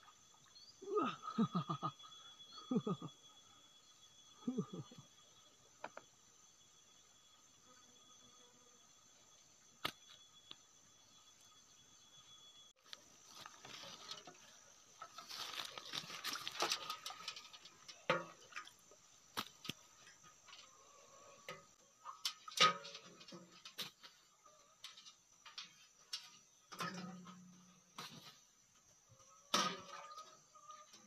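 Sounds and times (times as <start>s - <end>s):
high insect drone: 0.0s - 21.9s
fish flopping on grass and leaves: 15.1s - 17.2s.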